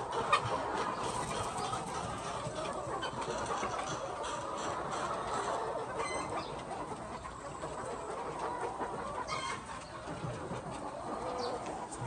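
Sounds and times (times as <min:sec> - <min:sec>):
hens clucking: 0:00.0 - 0:12.0.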